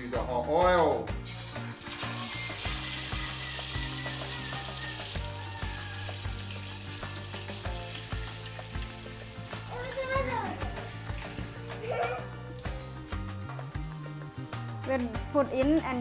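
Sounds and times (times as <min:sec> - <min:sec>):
egg sizzling in hot oil: 0:01.2 - 0:13.3.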